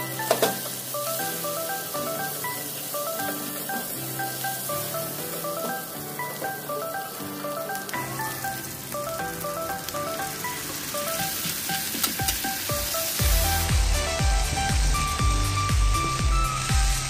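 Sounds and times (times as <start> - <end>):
onions sizzling in a frying pan: 0.0 - 17.0
background music with heavy beat: 9.0 - 17.0.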